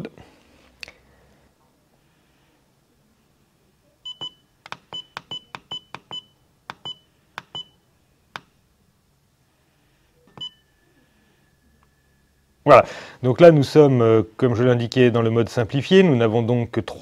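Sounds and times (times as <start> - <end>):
short high beeps: 10.3 - 10.9.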